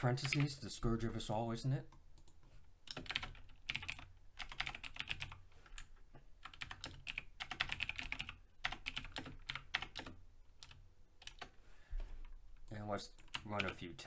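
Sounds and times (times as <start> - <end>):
computer keyboard typing: 0.2 - 0.6, 2.2 - 11.5, 12.6 - 13.8.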